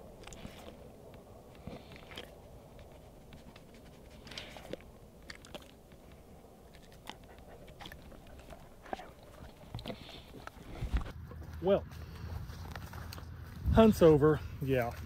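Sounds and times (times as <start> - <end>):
dog crunching a cookie: 0.0 - 11.5.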